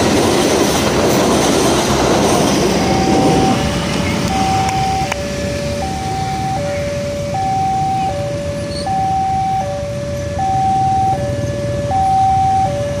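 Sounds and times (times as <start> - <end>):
two-tone crossing alarm: 2.5 - 13.0
idling motorcycles and cars: 2.9 - 13.0.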